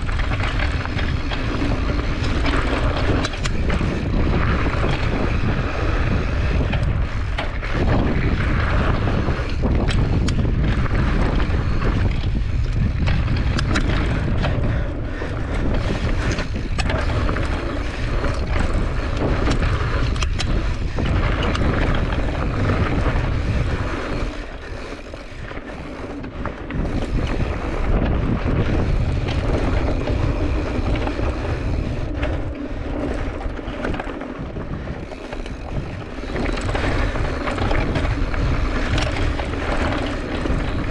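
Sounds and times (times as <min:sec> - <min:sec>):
bike clicks and rattles: 0:00.0 - 0:40.9
tyres rolling on loose dirt: 0:00.0 - 0:40.9
wind buffeting microphone: 0:00.0 - 0:40.9.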